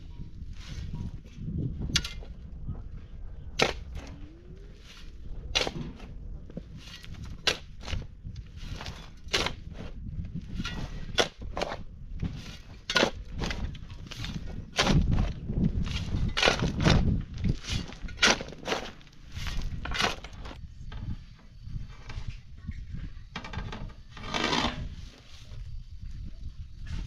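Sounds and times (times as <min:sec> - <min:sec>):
dirt and stones crunching: 0:00.0 - 0:27.0
pickaxe striking stony ground: 0:01.9 - 0:02.3, 0:03.6 - 0:04.2, 0:05.6 - 0:06.1, 0:06.8 - 0:08.0, 0:08.7 - 0:09.7, 0:10.5 - 0:20.6.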